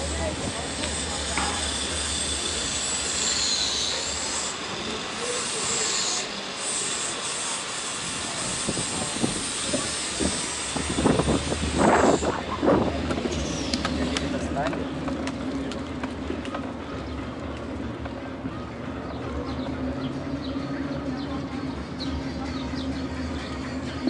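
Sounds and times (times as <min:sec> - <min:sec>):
high-pitched squealing: 0:00.5 - 0:12.7
bicycle rolling: 0:11.8 - 0:22.0.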